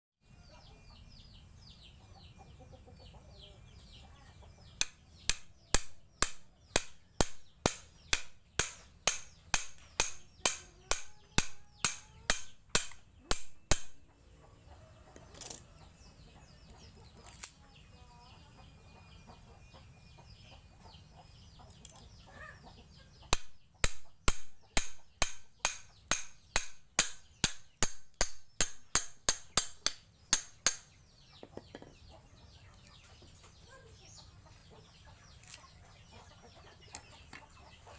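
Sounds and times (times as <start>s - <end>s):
hammer knocking on machete blade: 4.8s - 14.0s, 23.3s - 31.9s.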